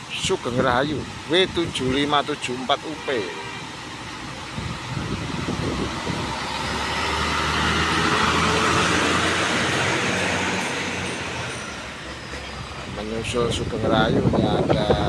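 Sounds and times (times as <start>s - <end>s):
bus driving past: 3.6s - 13.9s.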